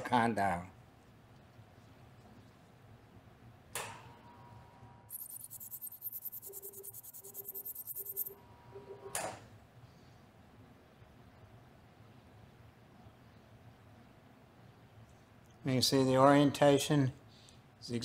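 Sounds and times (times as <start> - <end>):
rapid high-pitched pulsing buzz: 5.1 - 8.4
steady electronic tone: 5.1 - 8.4
short low beeps: 5.1 - 9.1.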